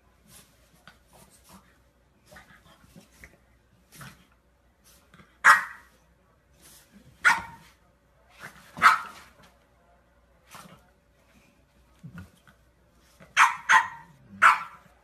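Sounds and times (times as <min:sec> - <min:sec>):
dog barking: 0:05.4 - 0:05.9, 0:07.2 - 0:07.6, 0:08.8 - 0:09.2, 0:13.4 - 0:14.9.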